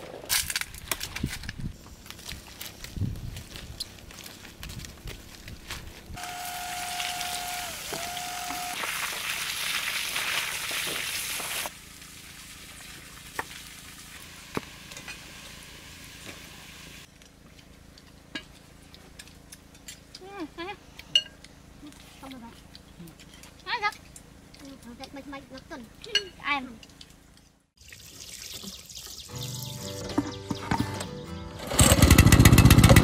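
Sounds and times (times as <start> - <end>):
soup bubbling and hissing: 6.2 - 17.1.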